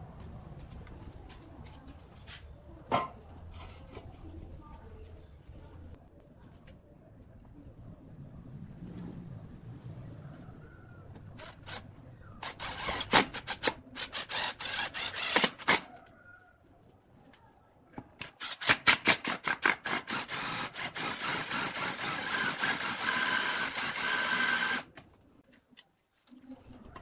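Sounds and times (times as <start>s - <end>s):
drill clicking: 12.4s - 15.8s, 18.3s - 24.9s
cordless drill whirring: 14.0s - 15.8s, 18.4s - 24.9s.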